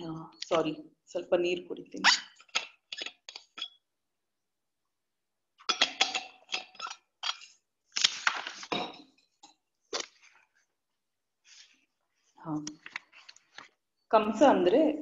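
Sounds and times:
drinking vessel clinks and knocks: 0:05.7 - 0:07.5.

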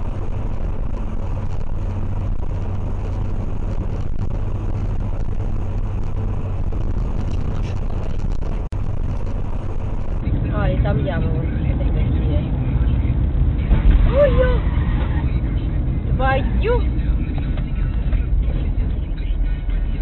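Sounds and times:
tyre and wind rush: 0:00.0 - 0:10.9
car engine drone: 0:00.0 - 0:20.0.

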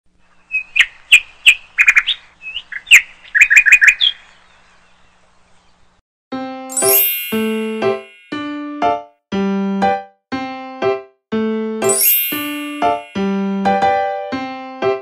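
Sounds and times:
bird chirping: 0:00.2 - 0:06.0
keyboard jingle: 0:06.3 - 0:09.1, 0:11.8 - 0:14.5.

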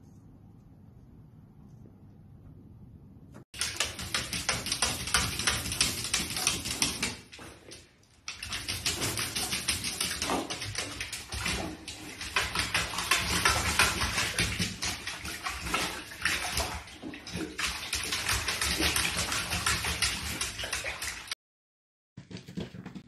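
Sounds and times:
dog splashing in bathwater: 0:03.5 - 0:21.4.

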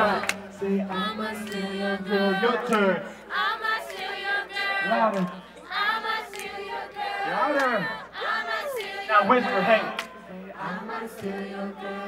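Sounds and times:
crowd noise: 0:00.0 - 0:12.0.

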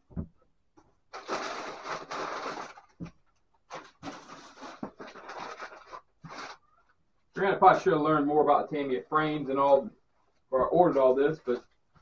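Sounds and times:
packing paper rustling: 0:01.1 - 0:06.8.

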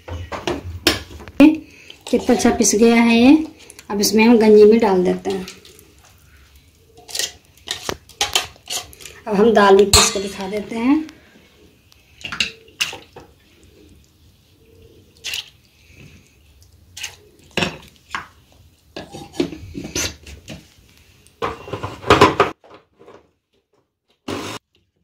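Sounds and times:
spoon clinking against bowls: 0:10.0 - 0:10.5.

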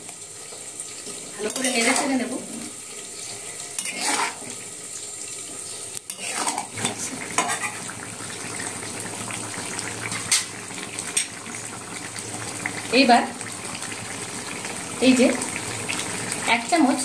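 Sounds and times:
gravy simmering sizzle: 0:00.0 - 0:17.0
metal spatula scraping a pan: 0:01.4 - 0:02.4, 0:03.3 - 0:04.6, 0:06.1 - 0:08.0, 0:10.1 - 0:11.4.

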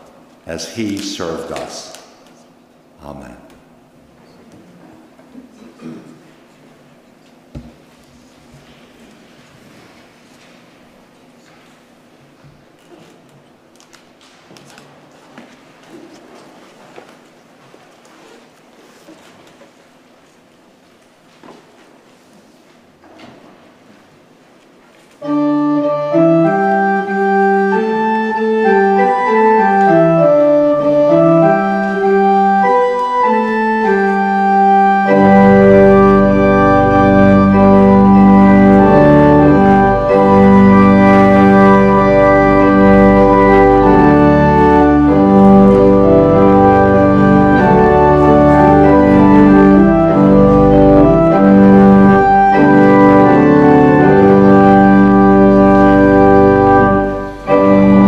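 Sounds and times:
electronic organ chords: 0:25.2 - 0:58.0
organ pedal bass: 0:25.2 - 0:58.0.

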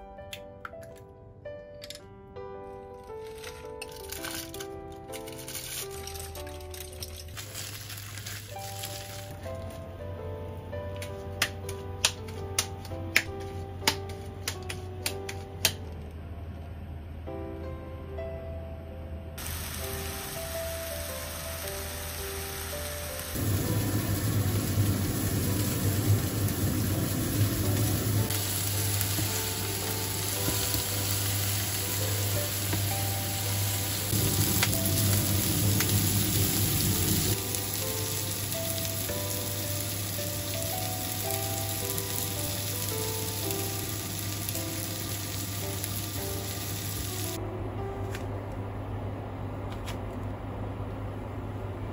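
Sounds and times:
soft melody: 0:00.0 - 0:51.0
patties sizzling in a frying pan: 0:19.4 - 0:47.3.

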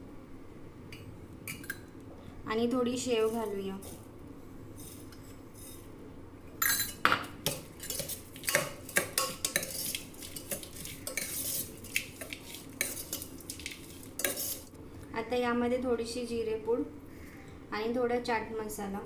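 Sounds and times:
spoon scraping a steel bowl: 0:03.1 - 0:04.1, 0:04.8 - 0:05.9, 0:06.6 - 0:14.7.

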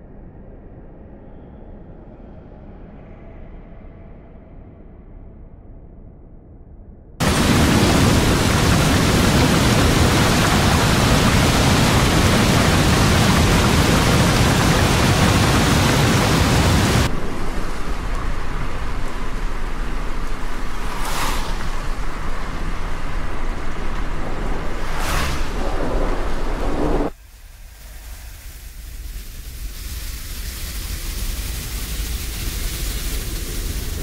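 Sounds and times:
low rumble: 0:00.0 - 0:34.0
heavy rain hiss: 0:07.2 - 0:22.6, 0:27.1 - 0:34.0
sharp crackle: 0:07.2 - 0:24.0, 0:26.6 - 0:34.0.

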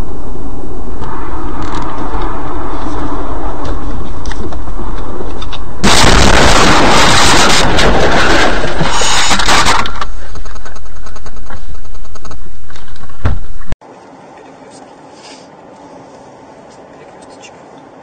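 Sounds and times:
low hum: 0:00.0 - 0:14.6
crunching and scraping metal: 0:01.1 - 0:13.2
loud car crash: 0:05.8 - 0:10.1
scattered clicks: 0:09.8 - 0:13.1.

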